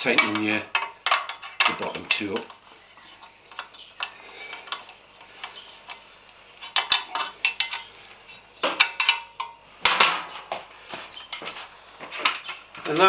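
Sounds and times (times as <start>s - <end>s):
tools clinking on metal bolts: 0.0s - 2.6s, 6.6s - 8.0s, 8.6s - 9.6s.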